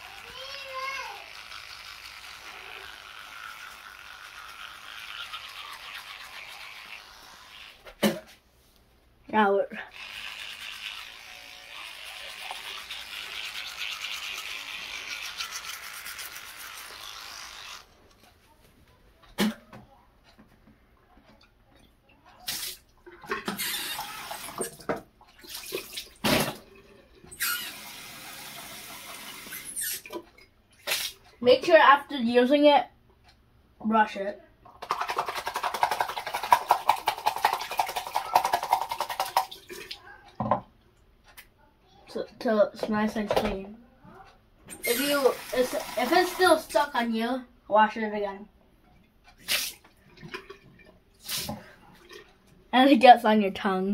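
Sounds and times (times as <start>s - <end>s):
electric toothbrush scrubbing teeth: 0.0s - 8.0s, 9.8s - 18.0s, 23.5s - 24.7s, 27.3s - 30.0s, 34.8s - 39.6s, 44.7s - 47.1s.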